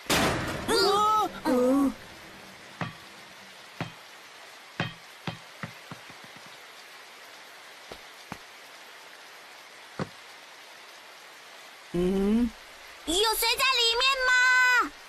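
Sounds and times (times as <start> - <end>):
steady rain falling: 0.0 - 15.0
sharp taps: 3.8 - 4.0, 4.8 - 6.6.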